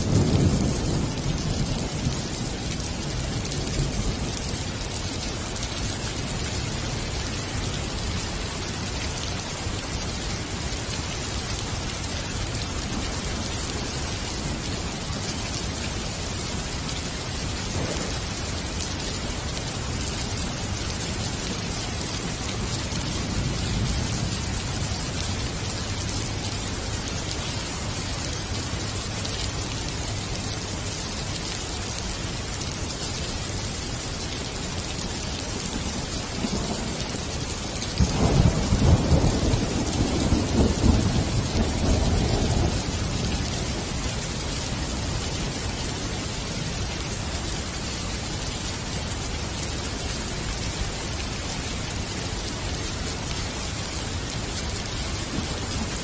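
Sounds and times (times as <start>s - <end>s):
low rumble of thunder: 0.0s - 6.7s, 11.6s - 19.5s, 20.7s - 28.6s, 35.6s - 46.9s, 54.7s - 56.0s
steady rain falling: 0.0s - 56.0s.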